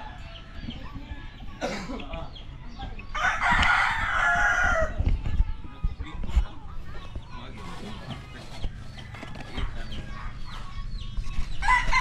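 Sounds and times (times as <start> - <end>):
rooster crowing: 3.2 - 5.0, 11.6 - 12.0.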